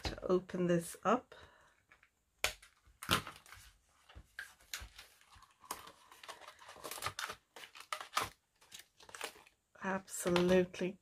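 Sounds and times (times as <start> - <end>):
plastic packaging crinkling: 3.0 - 9.6.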